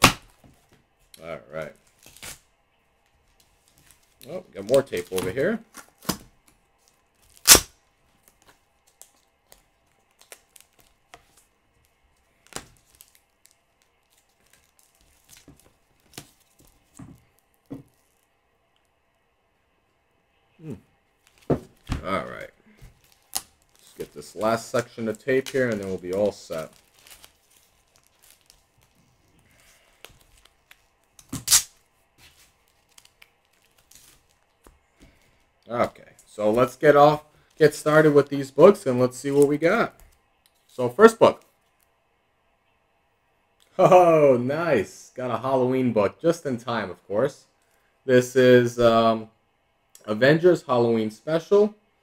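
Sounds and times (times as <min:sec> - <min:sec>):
packing tape ripping: 0:01.9 - 0:02.5, 0:07.2 - 0:07.8, 0:23.0 - 0:29.0, 0:29.6 - 0:31.9, 0:32.6 - 0:34.6
package crinkling: 0:03.3 - 0:18.3, 0:21.2 - 0:35.6.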